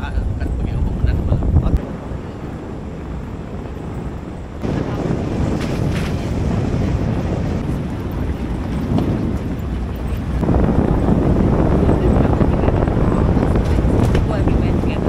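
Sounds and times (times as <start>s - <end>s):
wind buffeting microphone: 0.0s - 15.0s
truck rumbling on rough road: 3.8s - 15.0s.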